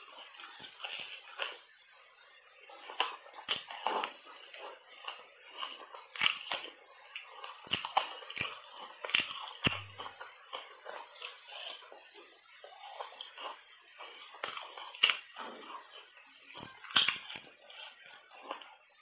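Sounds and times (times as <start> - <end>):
ice being crunched and chewed: 0.0 - 1.8, 2.4 - 19.0.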